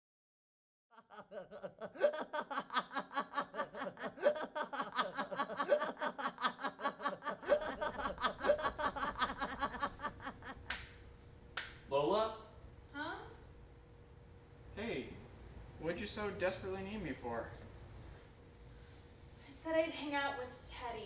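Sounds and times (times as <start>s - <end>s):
person giggling: 1.0s - 10.7s.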